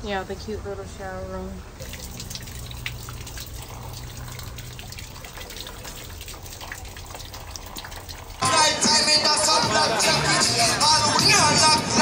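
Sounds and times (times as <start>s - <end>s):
shower water splashing: 1.8s - 8.4s.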